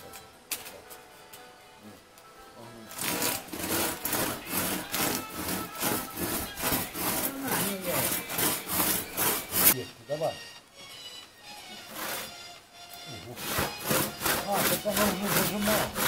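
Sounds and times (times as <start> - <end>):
crosscut saw cutting wood: 2.9 - 9.8, 11.7 - 12.4, 13.2 - 16.0.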